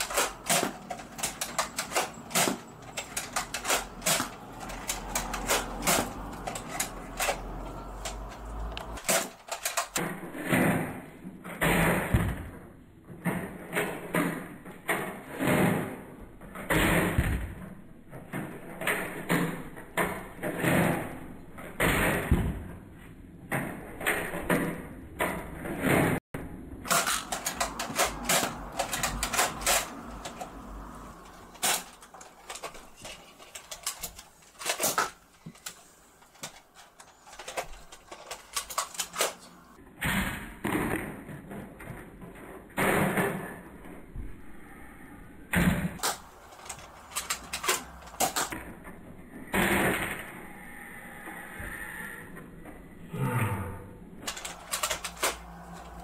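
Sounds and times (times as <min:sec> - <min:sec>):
plastic toy blaster clicks: 0:26.8 - 0:30.6, 0:46.0 - 0:48.6, 0:54.3 - 0:56.0.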